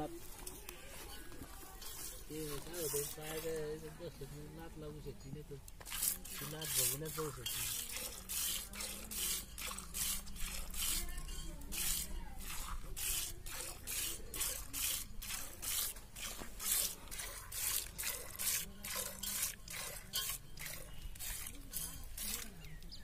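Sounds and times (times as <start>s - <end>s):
milk squirting into steel pail: 5.8s - 22.6s.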